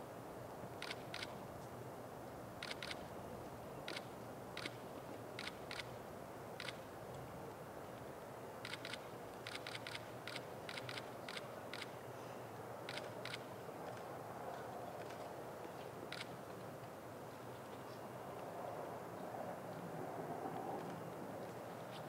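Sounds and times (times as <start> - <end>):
faint background noise: 0.0 - 22.0
camera shutter clicking: 0.8 - 1.3, 2.6 - 3.0, 8.6 - 11.9, 12.9 - 13.4.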